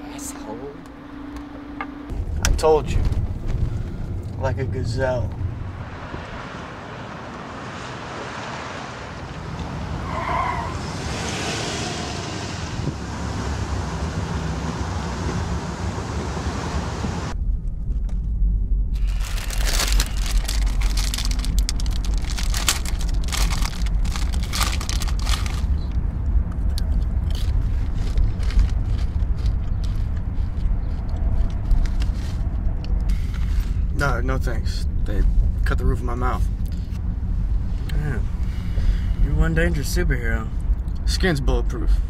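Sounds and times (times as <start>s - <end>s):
car engine and road rumble: 0.0s - 42.0s
crackling crinkling clicks: 19.0s - 32.2s.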